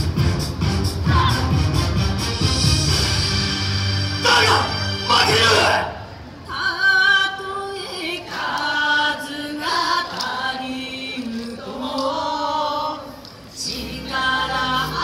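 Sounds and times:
choir-like singing over loudspeakers: 4.2 - 15.0.

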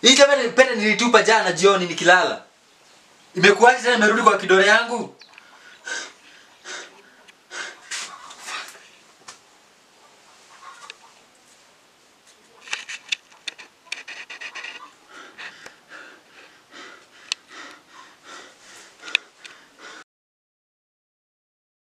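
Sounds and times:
man panting and gasping: 5.4 - 9.0, 15.0 - 20.0.

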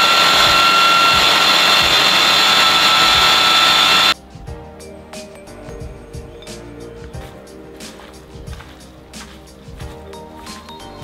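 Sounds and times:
food processor motor whining: 0.0 - 4.2.

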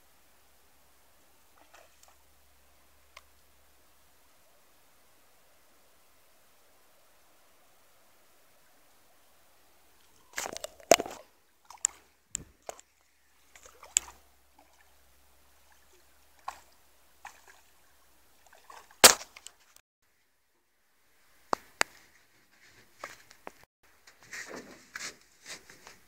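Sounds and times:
fish thrashing and splashing: 10.3 - 14.9, 15.7 - 17.7.

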